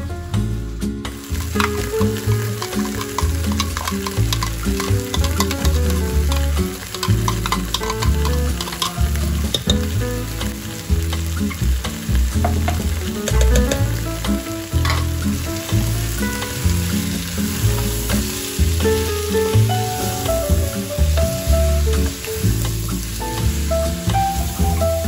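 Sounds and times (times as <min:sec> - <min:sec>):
background music with bass: 0:00.0 - 0:25.0
chicken sizzling in a pot: 0:00.3 - 0:25.0
spatula knocking and scraping pot: 0:01.4 - 0:10.0, 0:12.4 - 0:13.9, 0:14.8 - 0:15.2.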